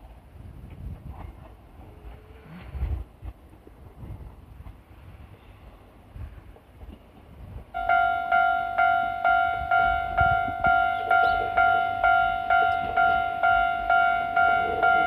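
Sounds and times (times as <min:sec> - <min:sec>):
level crossing electronic bell: 0:07.8 - 0:15.0.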